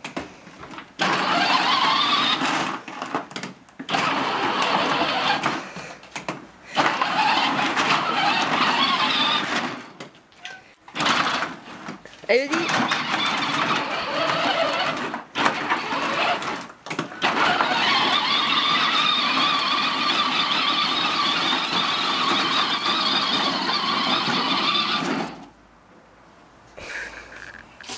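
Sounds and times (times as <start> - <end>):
plastic wheels rolling on gravel: 0.6 - 5.6, 6.8 - 10.0, 10.9 - 25.5
electric toy motor whining: 1.0 - 2.6, 3.9 - 5.6, 6.8 - 9.8, 12.5 - 16.6, 17.2 - 25.5.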